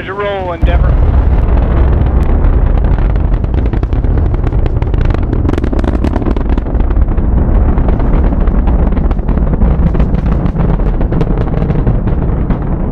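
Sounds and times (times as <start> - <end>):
rocket engines rumbling and crackling: 0.0 - 12.9.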